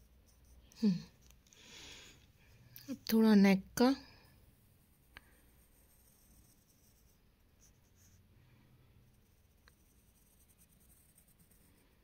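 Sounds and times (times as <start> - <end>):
pencil scratching on paper: 0.0 - 0.7, 4.5 - 8.2, 9.1 - 12.0.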